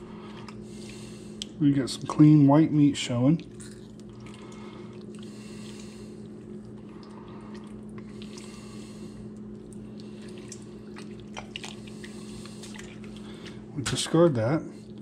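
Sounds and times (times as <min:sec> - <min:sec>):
steady low hum: 0:00.0 - 0:15.0
wet squelching of octopus skin: 0:03.2 - 0:13.7.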